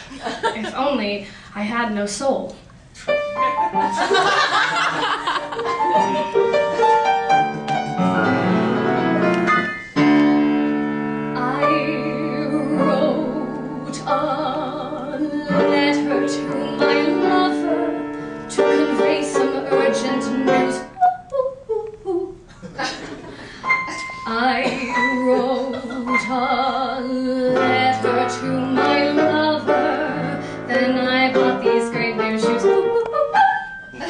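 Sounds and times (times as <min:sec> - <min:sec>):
piano chords: 0:03.1 - 0:21.3, 0:23.4 - 0:34.0
woman singing operatic soprano: 0:11.4 - 0:22.4, 0:24.0 - 0:33.9.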